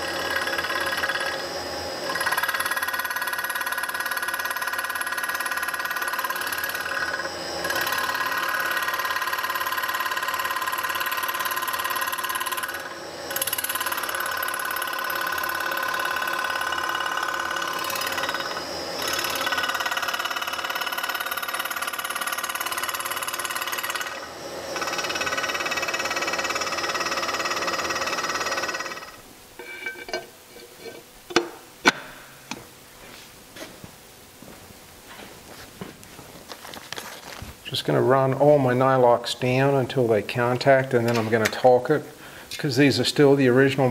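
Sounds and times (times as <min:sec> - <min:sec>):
milling machine cutting whine: 0:00.0 - 0:30.1.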